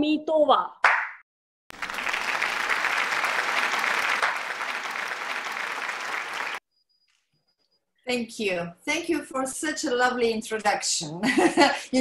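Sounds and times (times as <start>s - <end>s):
applause: 1.7s - 6.6s.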